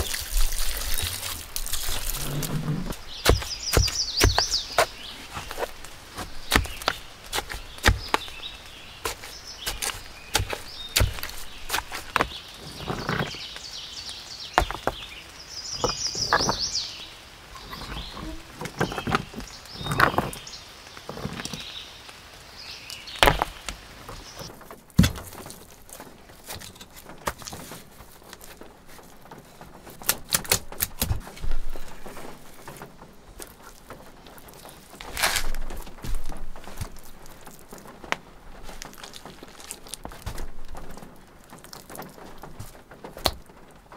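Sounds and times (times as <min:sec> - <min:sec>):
stones knocking together: 0:00.0 - 0:13.5, 0:14.6 - 0:16.8, 0:17.6 - 0:21.7, 0:23.1 - 0:43.9
trowel scraping clay in bucket: 0:00.0 - 0:13.5, 0:17.6 - 0:20.4, 0:35.0 - 0:37.8
bird chirping: 0:01.7 - 0:24.5.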